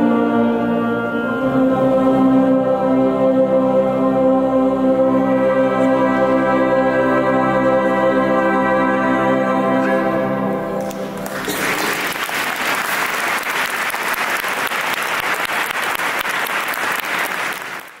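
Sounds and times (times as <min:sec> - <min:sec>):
audience applauding: 0:10.8 - 0:18.0.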